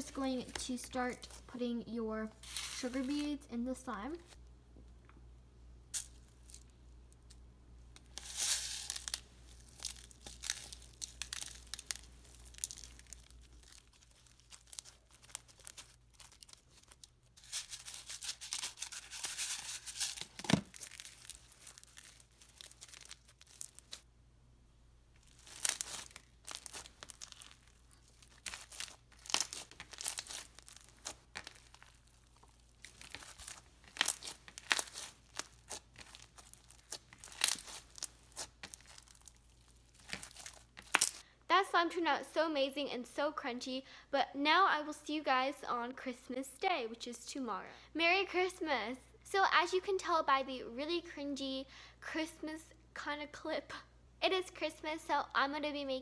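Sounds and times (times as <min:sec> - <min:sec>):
slime with beads crunching: 0:02.4 - 0:04.3, 0:08.0 - 0:24.0, 0:25.2 - 0:41.2.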